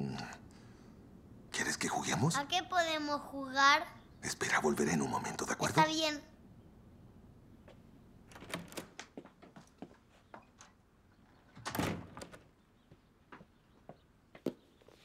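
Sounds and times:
door swinging open: 0:08.3 - 0:09.1, 0:11.5 - 0:12.5.

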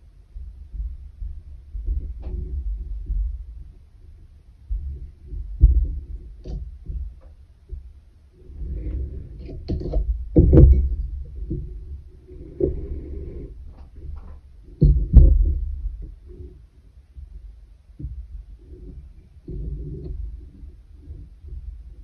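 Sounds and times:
knocks against wooden frame: 0:09.6 - 0:11.7, 0:14.2 - 0:15.8.

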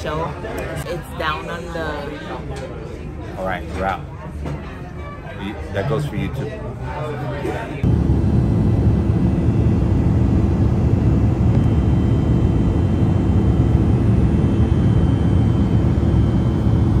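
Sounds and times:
jet airliner cabin drone: 0:07.8 - 0:17.0.

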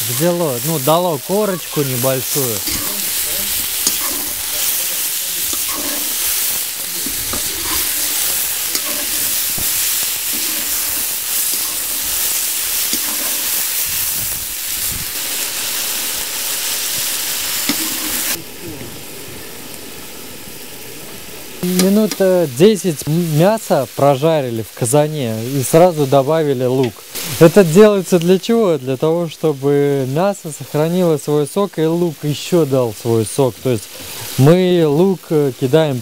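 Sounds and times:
meat sizzling in hot oil: 0:00.0 - 0:36.0
metal spoon stirring: 0:02.0 - 0:14.0, 0:17.6 - 0:18.4.

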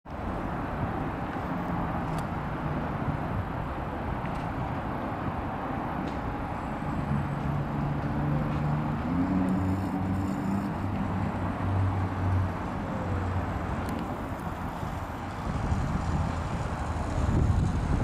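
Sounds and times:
distant road traffic: 0:00.1 - 0:18.0
low engine drone: 0:00.1 - 0:18.0.

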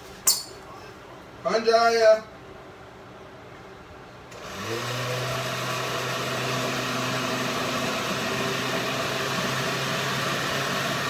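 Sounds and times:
blender motor running: 0:04.3 - 0:11.0.

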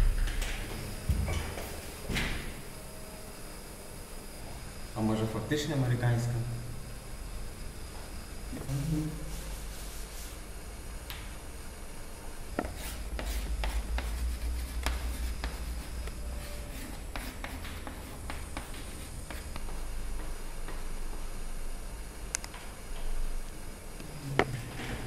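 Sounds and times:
chalk writing on blackboard: 0:12.6 - 0:20.3.

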